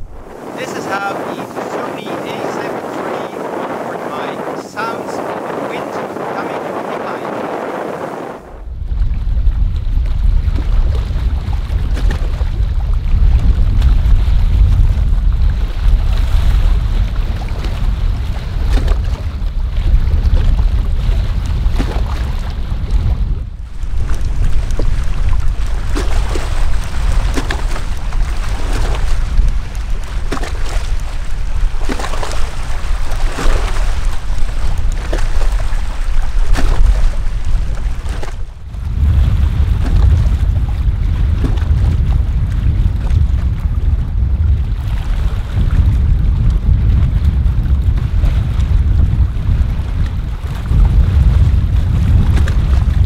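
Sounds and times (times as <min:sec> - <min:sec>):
waves splashing on rocks: 0:00.0 - 0:08.4, 0:15.5 - 0:43.3
wind buffeting microphone: 0:00.0 - 0:53.0.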